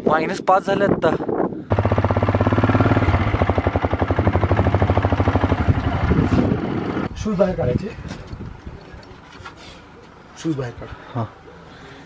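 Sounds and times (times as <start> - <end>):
vehicle engine idling: 1.7 - 7.1.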